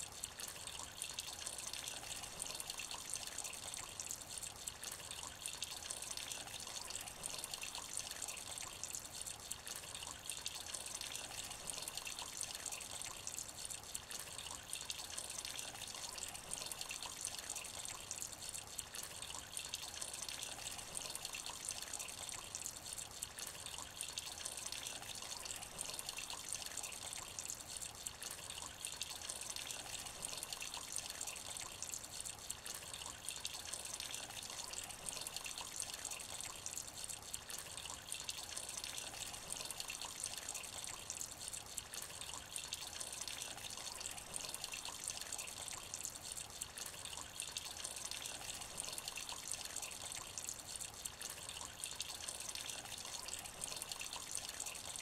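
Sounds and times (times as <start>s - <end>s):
light rain on shallow water: 0.0s - 55.0s.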